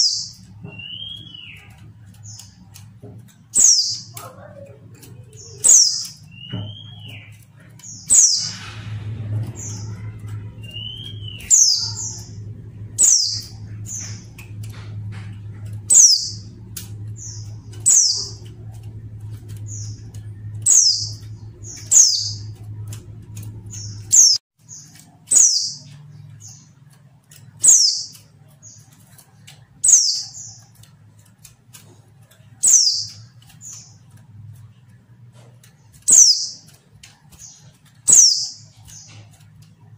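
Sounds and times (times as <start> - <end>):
bird calling high sharp notes: 0.0 - 2.8, 3.5 - 26.7
low background hum: 0.0 - 39.9.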